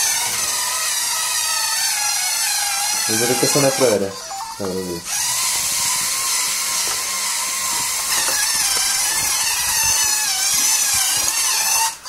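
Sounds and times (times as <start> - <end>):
robot motors whining: 0.0 - 12.0.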